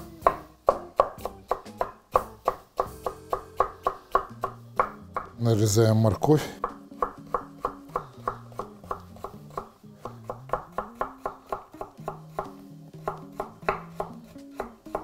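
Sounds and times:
knife chopping on wooden board: 0:00.0 - 0:05.4, 0:06.6 - 0:15.0
soft background music: 0:00.0 - 0:15.0.

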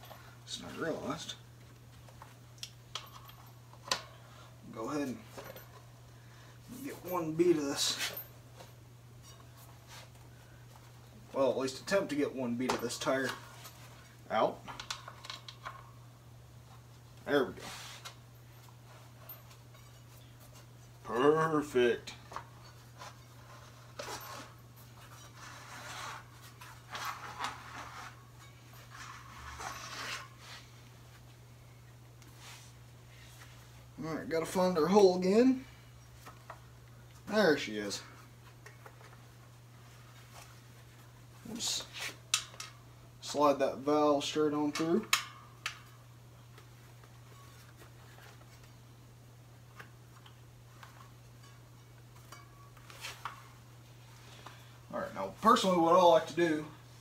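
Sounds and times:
steady low hum: 0:00.0 - 0:57.0.

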